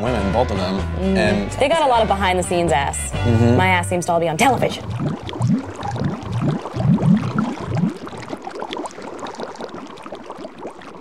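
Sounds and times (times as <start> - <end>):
fizz of small bubbles: 4.4 - 11.0
water splashing and bubbling: 4.4 - 11.0.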